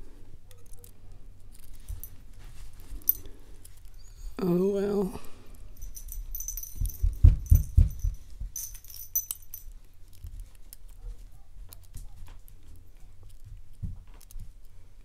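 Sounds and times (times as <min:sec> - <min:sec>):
lock pick clicking and scraping: 0:00.5 - 0:02.2
dull handling bumps: 0:05.8 - 0:09.6.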